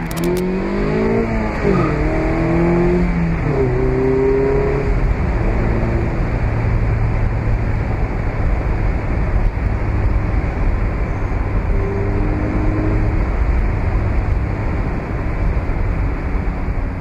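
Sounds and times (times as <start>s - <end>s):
car engine droning: 0.0s - 17.0s
road noise: 0.0s - 17.0s.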